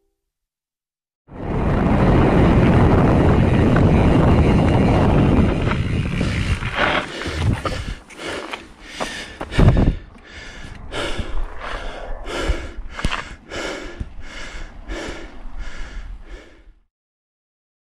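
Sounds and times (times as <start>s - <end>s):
heavy rapid breathing: 6.1s - 16.9s.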